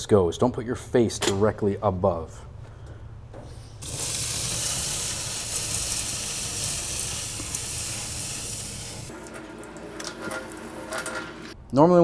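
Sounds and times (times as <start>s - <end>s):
hot steel sizzling under water: 3.8s - 11.6s.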